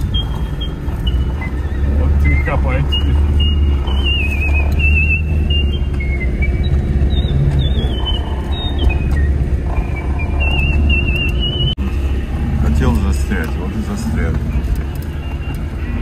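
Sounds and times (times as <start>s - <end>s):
high-pitched wavering whistle: 0.0s - 11.8s
car engine straining: 0.0s - 16.0s.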